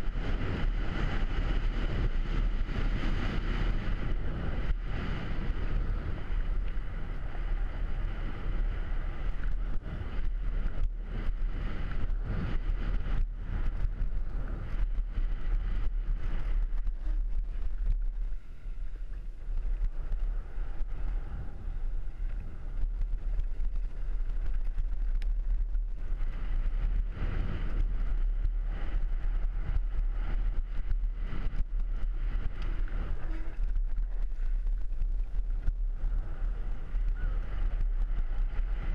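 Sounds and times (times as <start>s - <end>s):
tyres rumbling on dirt trail: 0.0s - 38.9s
wind buffeting microphone: 0.0s - 38.9s
bike knocking and rattling: 9.3s - 21.2s, 22.0s - 38.9s.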